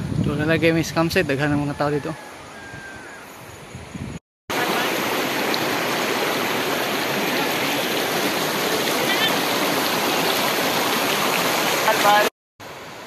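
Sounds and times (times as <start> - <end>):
river rushing over stones: 4.5 - 13.0.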